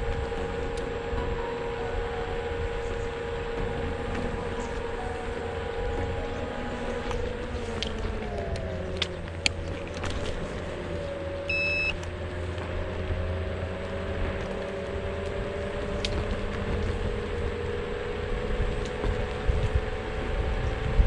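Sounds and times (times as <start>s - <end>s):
electric motor whine: 0.0s - 21.0s
wind rumble: 0.0s - 21.0s
short electronic beep: 11.5s - 12.0s.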